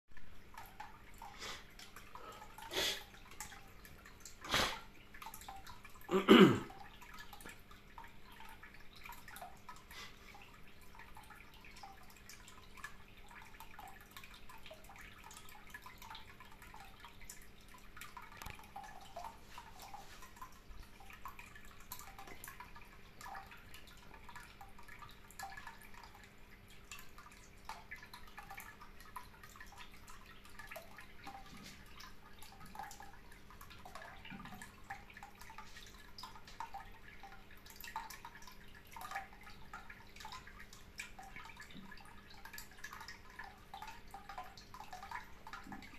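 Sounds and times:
faint electrical hum: 0:00.1 - 0:45.9
water trickling and dripping: 0:00.1 - 0:45.9.

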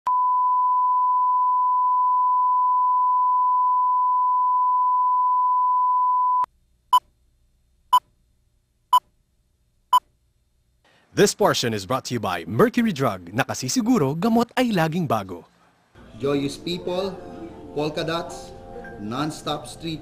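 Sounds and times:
steady sine test tone: 0:00.1 - 0:06.5.

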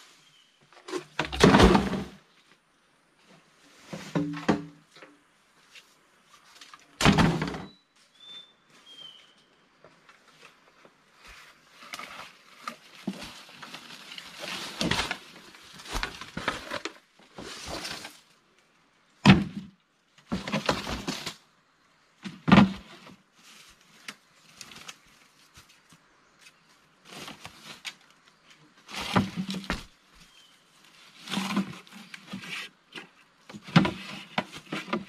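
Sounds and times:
rustling: 0:09.9 - 0:18.4, 0:22.6 - 0:35.0.

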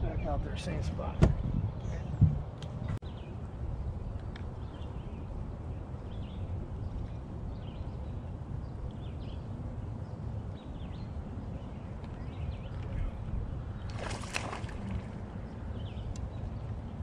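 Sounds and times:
birds chirping: 0:00.0 - 0:17.0
wind rumble on microphone: 0:00.0 - 0:17.0.

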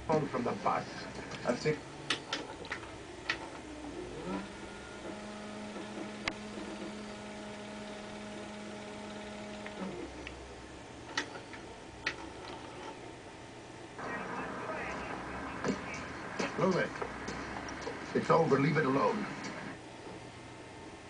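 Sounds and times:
low electrical hum: 0:00.0 - 0:21.0
sharp clicks: 0:09.0 - 0:10.4.

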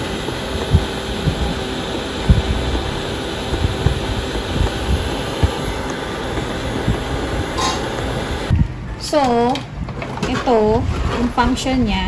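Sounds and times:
robot vacuum hissing and humming: 0:00.0 - 0:08.5.

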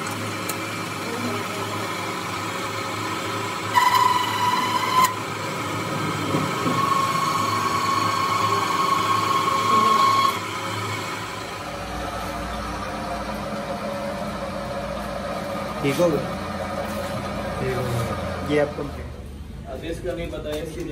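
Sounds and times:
metal lathe humming: 0:00.0 - 0:19.3
high whining tone: 0:03.5 - 0:15.1.

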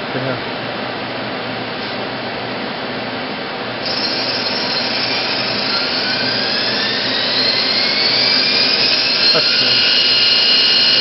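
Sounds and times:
high spindle whine: 0:03.8 - 0:11.0
lathe running: 0:03.8 - 0:11.0.

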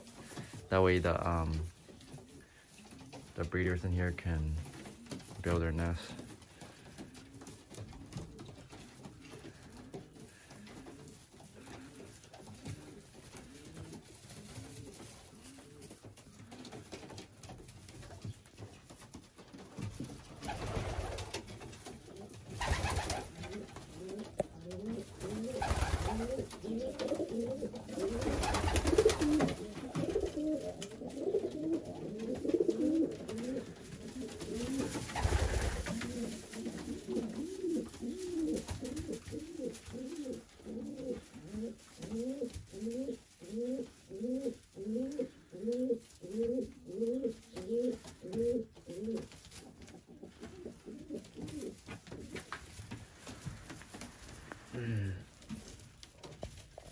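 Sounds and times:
rustling: 0:00.0 - 0:56.9
pigeons cooing: 0:04.6 - 0:17.6, 0:20.3 - 0:52.5.

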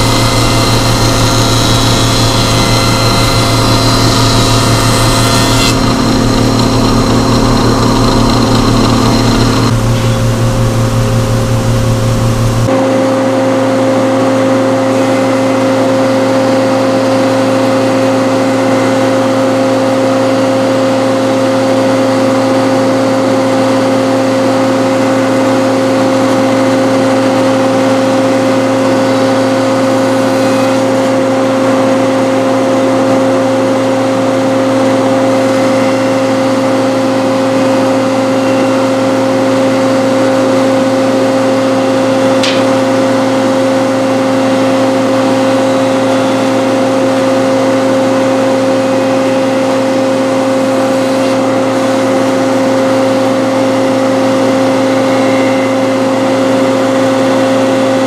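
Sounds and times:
machine motors humming: 0:00.0 - 0:12.7
small click: 0:42.4 - 0:42.7.

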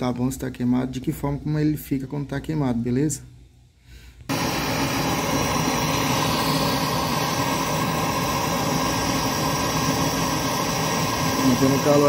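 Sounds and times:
gas torch flame hissing: 0:04.2 - 0:12.0.

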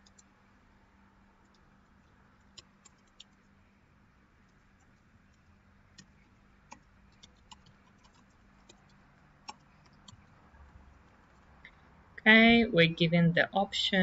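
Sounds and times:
computer keyboard typing: 0:00.0 - 0:00.3, 0:02.4 - 0:03.5, 0:04.4 - 0:10.3
faint steady hum: 0:00.0 - 0:14.0.

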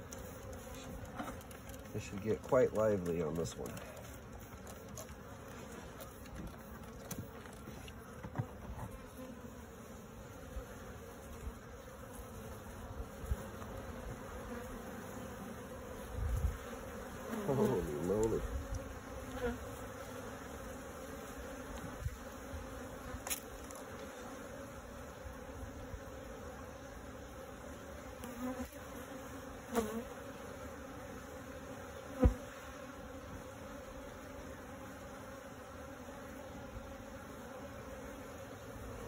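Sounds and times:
bees buzzing: 0:00.0 - 0:39.0
single bees buzzing past: 0:00.0 - 0:39.0.

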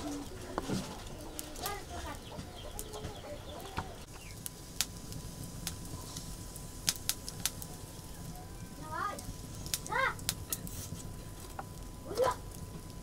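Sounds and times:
chickens clucking: 0:00.0 - 0:04.1.

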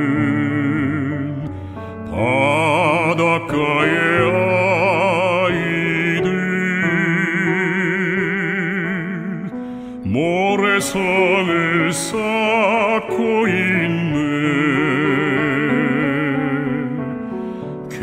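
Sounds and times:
man singing with vibrato: 0:00.0 - 0:18.0
piano accompaniment: 0:00.0 - 0:18.0.

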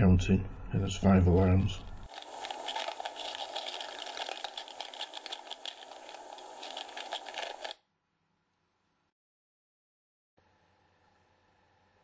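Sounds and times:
crackling and rattling noise: 0:01.2 - 0:07.8.

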